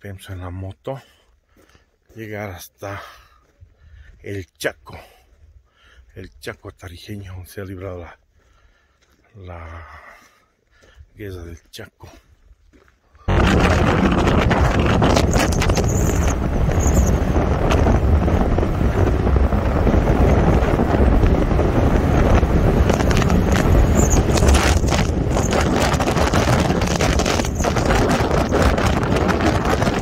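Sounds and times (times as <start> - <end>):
wind buffeting microphone: 13.3 - 30.0.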